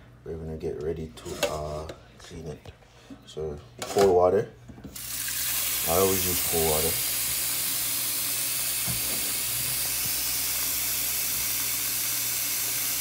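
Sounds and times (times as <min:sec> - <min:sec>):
water pouring from tap into bowl: 0:05.0 - 0:13.0.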